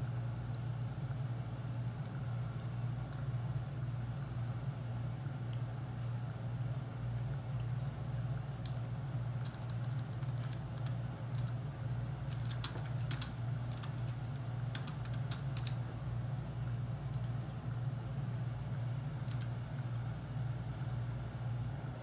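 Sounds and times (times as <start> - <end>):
steady low hum: 0.0 - 22.0
keyboard typing: 8.6 - 11.6, 12.3 - 15.8.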